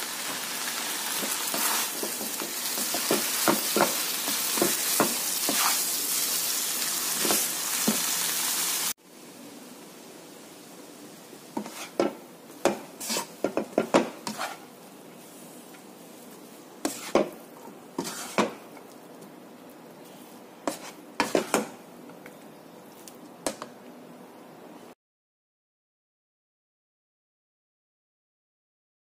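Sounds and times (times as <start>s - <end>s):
faint sizzle: 0.0s - 25.0s
spatula scraping a frying pan: 0.2s - 6.3s, 7.1s - 8.1s, 11.6s - 18.9s, 20.0s - 21.8s.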